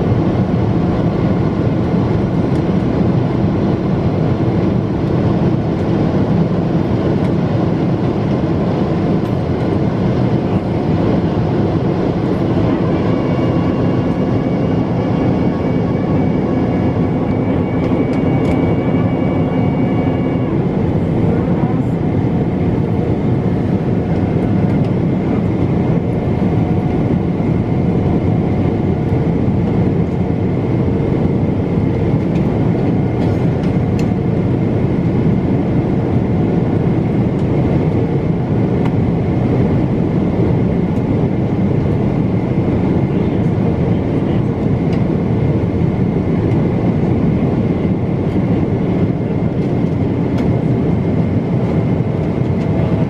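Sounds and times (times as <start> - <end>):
jet engine roar in cabin: 0.0 - 53.0
faint steady whine: 10.2 - 27.2.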